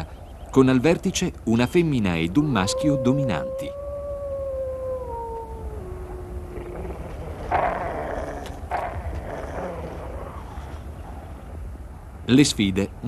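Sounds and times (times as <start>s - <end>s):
wolf howling: 2.4s - 10.7s.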